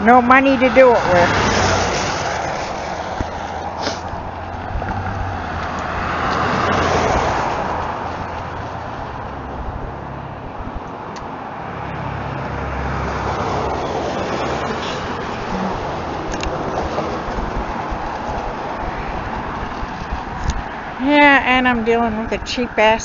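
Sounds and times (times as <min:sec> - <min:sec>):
cars passing: 0:00.0 - 0:23.0.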